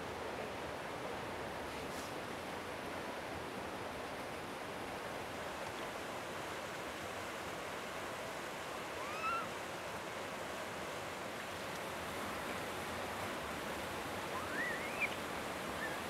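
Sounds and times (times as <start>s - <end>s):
flowing water rushing: 0.1s - 16.0s
monkey coo call: 9.0s - 9.5s, 14.3s - 15.2s.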